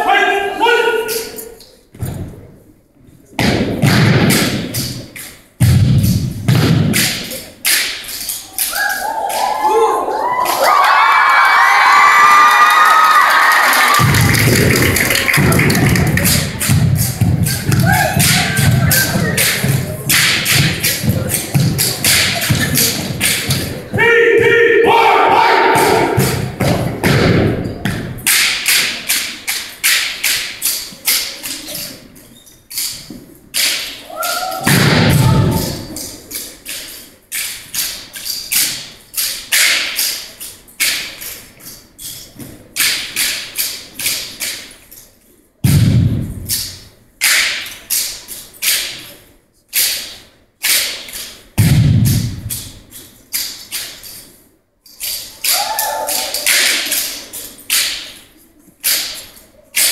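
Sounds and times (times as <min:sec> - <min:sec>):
heavy thuds and slaps: 0:03.3 - 0:08.0, 0:14.0 - 0:24.6, 0:25.7 - 0:29.0, 0:34.6 - 0:36.0, 0:45.6 - 0:47.6, 0:51.6 - 0:52.9
rifles and boots striking floor: 0:14.0 - 0:24.0.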